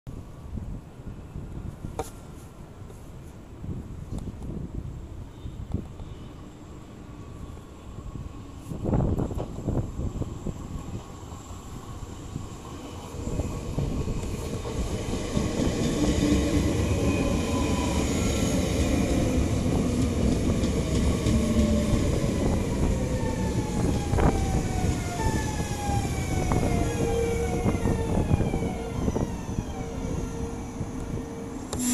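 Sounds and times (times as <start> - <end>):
train wheels rumbling on rail: 7.9 - 31.9.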